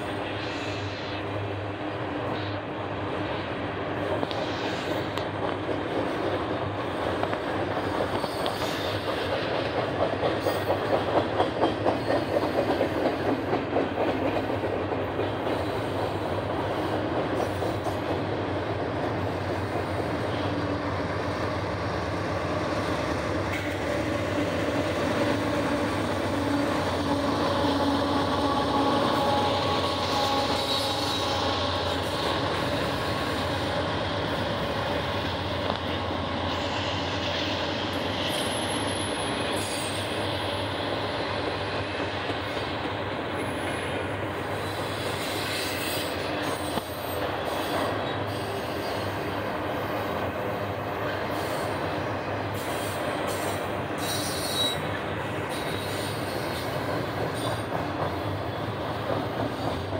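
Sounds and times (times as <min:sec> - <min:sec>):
diesel locomotive hum: 0:00.0 - 0:59.9
train wheels clicking over rail joints: 0:04.1 - 0:59.9.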